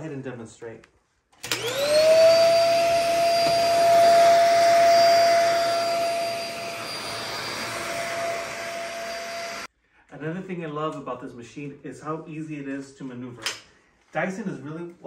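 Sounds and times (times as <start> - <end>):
vacuum cleaner motor whine: 1.4 - 9.7.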